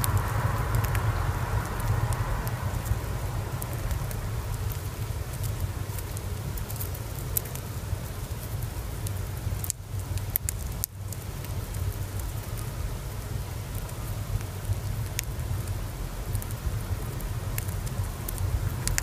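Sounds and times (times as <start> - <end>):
hamster nibbling seed: 0.0 - 7.7
steady low rumble: 0.0 - 19.0.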